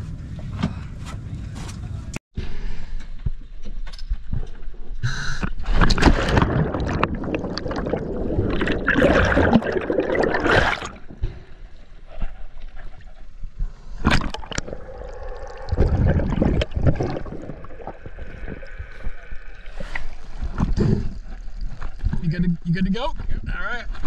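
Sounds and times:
water splashing: 5.6 - 11.5, 13.9 - 22.2
underwater bubbles rushing: 5.7 - 11.4, 14.0 - 22.2.

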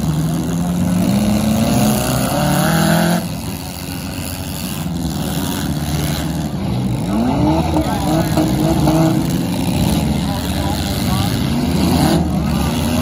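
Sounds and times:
rough engines running: 0.0 - 13.0
car engine revving hard: 0.5 - 3.4, 7.1 - 13.0.

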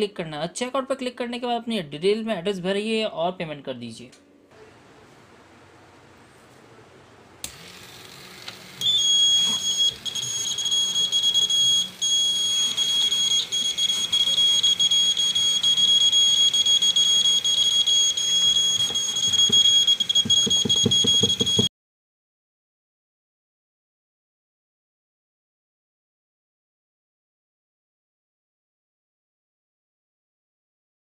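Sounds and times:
high-pitched buzzer alarm tone: 8.8 - 21.7.

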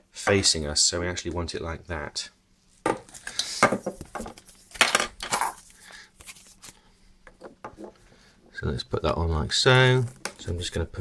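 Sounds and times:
plastic parts clattering on stone: 3.4 - 5.6.

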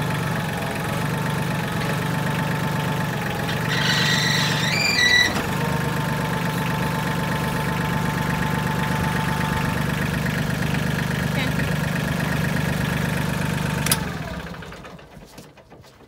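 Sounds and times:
tractor engine running: 0.0 - 16.0
hydraulic whine: 3.2 - 9.8.

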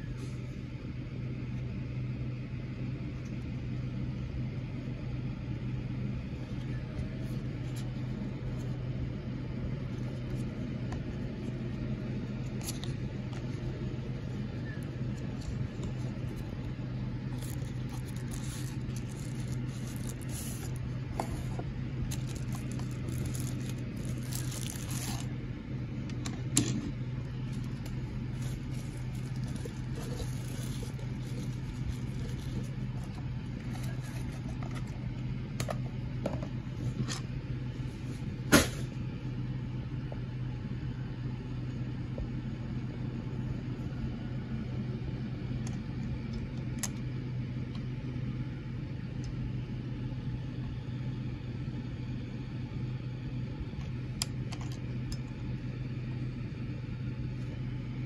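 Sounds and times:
low background hum: 0.0 - 58.0
cardboard box rustling and crinkling: 17.2 - 25.3, 27.4 - 35.0.

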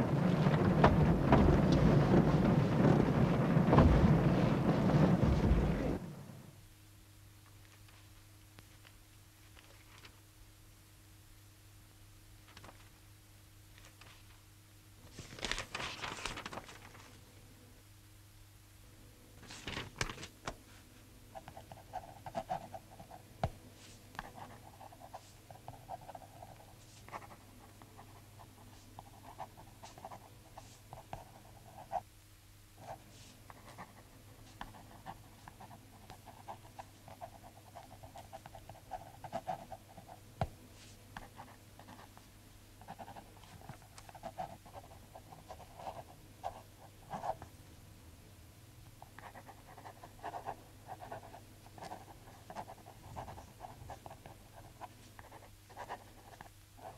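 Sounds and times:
low hum: 0.0 - 6.7
pen scratching on paper: 21.3 - 23.2, 23.8 - 32.0, 32.8 - 40.2, 40.8 - 42.2, 42.8 - 47.4, 49.0 - 56.9.

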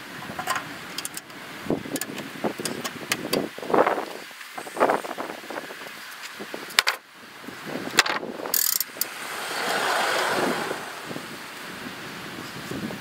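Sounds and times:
metal clicks and clanks: 0.2 - 3.3
sawhead rolling along steel track: 8.5 - 11.4.

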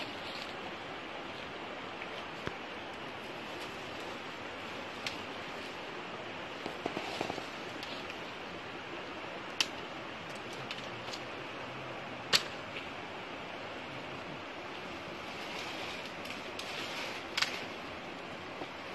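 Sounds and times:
steady outdoor hiss: 0.0 - 18.9
sharp cracks: 12.3 - 12.8, 16.2 - 17.8.

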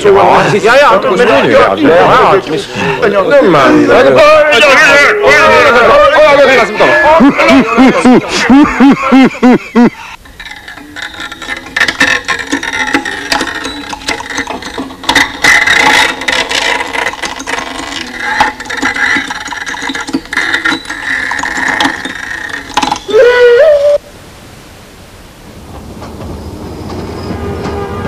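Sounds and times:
clattering and rattling effects: 10.2 - 23.2.

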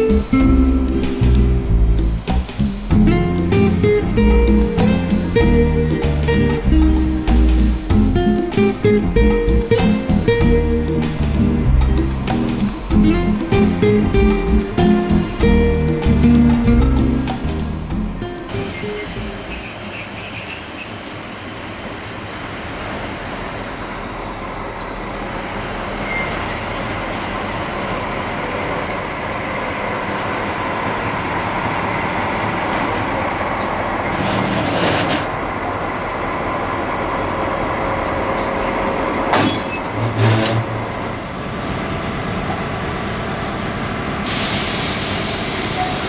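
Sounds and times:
diesel locomotive engine running: 0.0 - 46.0
short air hisses: 44.2 - 46.0.

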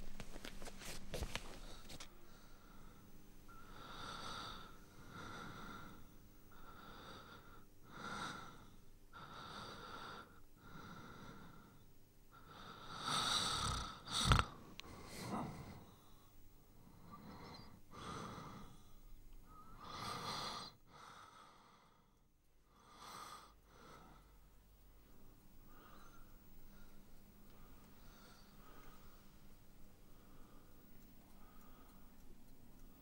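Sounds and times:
person breathing heavily: 3.7 - 8.6, 9.2 - 19.0, 22.8 - 29.4.

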